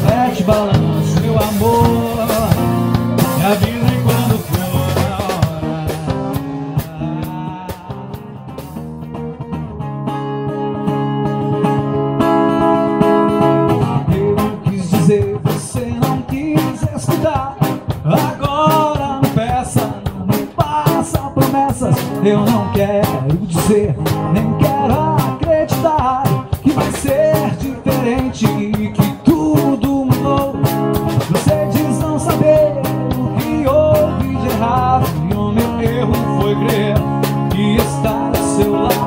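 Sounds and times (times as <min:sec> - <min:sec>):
drum kit with cymbals and snare: 0:00.0 - 0:09.4, 0:14.1 - 0:39.0
electric guitar playing: 0:00.0 - 0:39.0.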